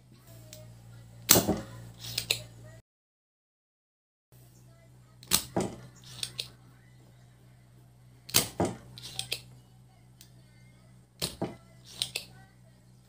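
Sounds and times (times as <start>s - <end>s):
desoldering pump snapping: 5.2s - 6.6s, 8.3s - 9.6s, 11.2s - 12.4s.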